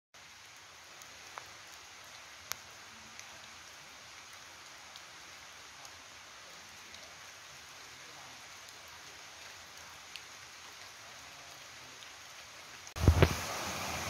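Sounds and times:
steady rain hiss: 0.2s - 14.0s
single raindrops landing: 0.3s - 6.0s.

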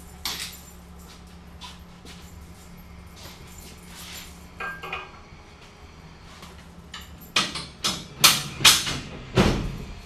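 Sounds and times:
hand truck knocks and clanks: 6.9s - 10.0s.

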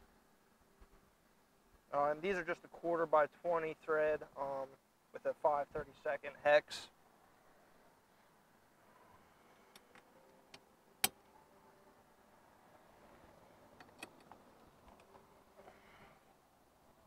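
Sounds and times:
metallic clicks of small bolts: 13.8s - 15.1s.

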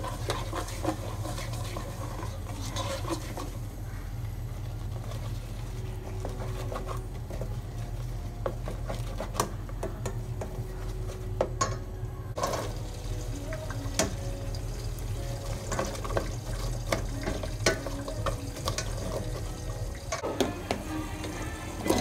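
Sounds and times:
liquid sloshing in pot: 0.0s - 3.6s
spatula scraping metal pot: 0.0s - 3.6s, 4.9s - 9.6s, 15.6s - 22.0s.

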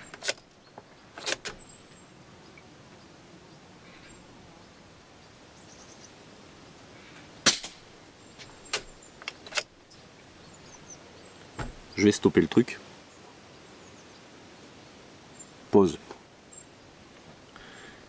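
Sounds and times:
suppressed rifle shot: 7.4s - 7.8s.

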